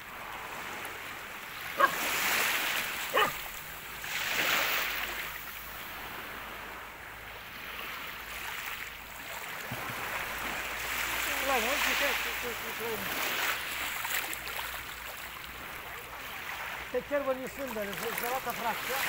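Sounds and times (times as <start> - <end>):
surf washing: 0.0 - 19.0
dog barking: 1.8 - 2.1, 3.1 - 3.5.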